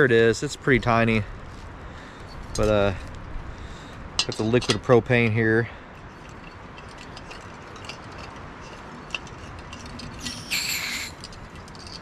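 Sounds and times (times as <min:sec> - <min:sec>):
metal arms clicking: 0:06.0 - 0:12.0
high metallic squeak: 0:09.4 - 0:12.0.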